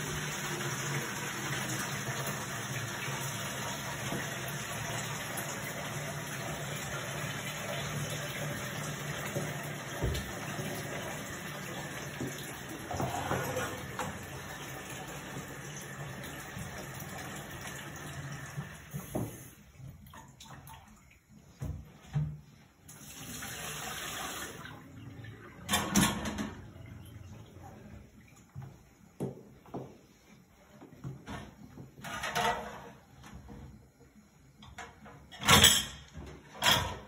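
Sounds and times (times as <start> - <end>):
kitchen tap running into sink: 0.0 - 20.9, 22.9 - 27.6.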